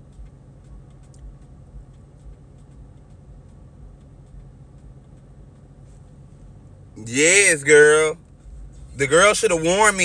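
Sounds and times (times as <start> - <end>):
faint irregular ticks: 0.0 - 6.5
car cabin hum: 0.0 - 10.0.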